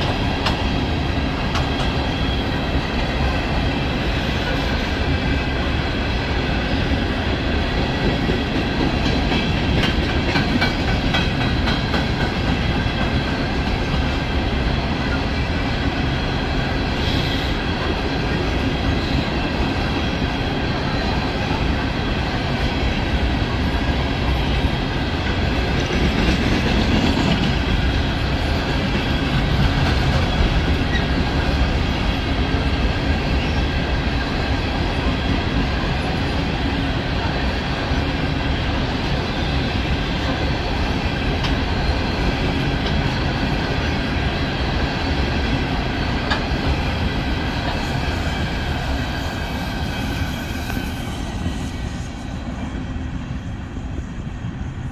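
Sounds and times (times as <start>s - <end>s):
train wheels rumbling on rail: 0.0s - 54.9s.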